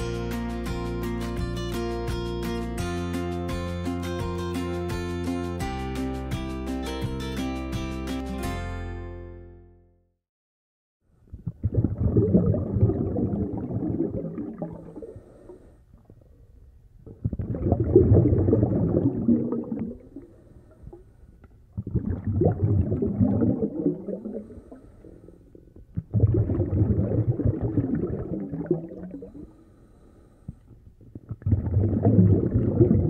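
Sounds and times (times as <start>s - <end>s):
underwater bubbling: 11.3s - 33.0s.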